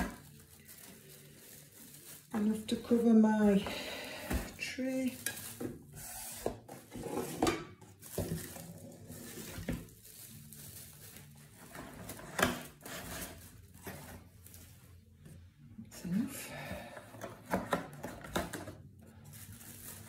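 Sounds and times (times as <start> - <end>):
cling film crinkling: 0.0 - 3.2, 7.9 - 11.6.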